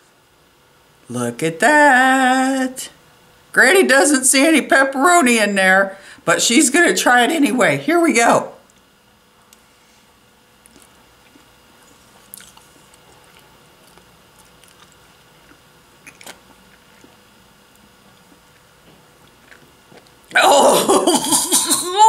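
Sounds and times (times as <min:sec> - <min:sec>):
mouth sounds eating: 0:10.6 - 0:17.3.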